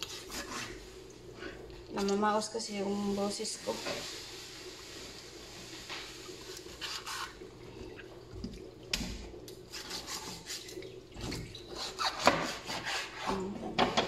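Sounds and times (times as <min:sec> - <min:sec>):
knife scraping on board: 0:00.0 - 0:00.8, 0:11.8 - 0:13.4.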